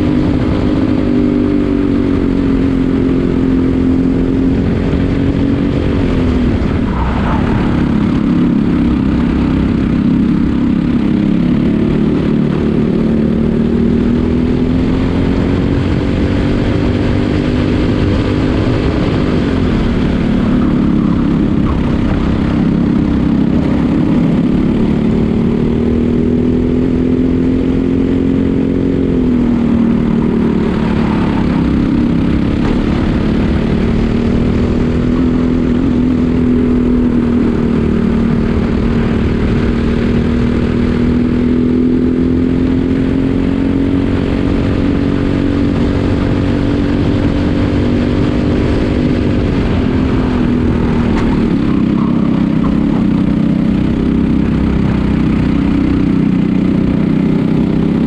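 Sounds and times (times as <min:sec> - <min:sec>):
kart engine at race pace: 0:00.0 - 0:58.0.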